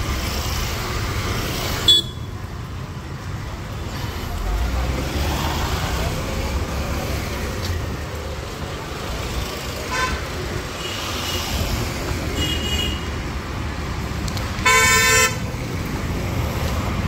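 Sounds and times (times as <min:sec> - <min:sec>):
road traffic noise: 0:00.0 - 0:17.0
vehicle horns honking: 0:01.8 - 0:02.4, 0:09.8 - 0:11.5, 0:12.4 - 0:13.1, 0:14.6 - 0:15.4.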